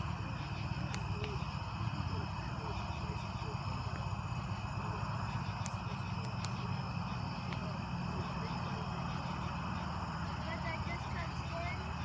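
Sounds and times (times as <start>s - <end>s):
faint insects chirring: 0.0s - 12.0s
faint ticks: 5.4s - 7.7s.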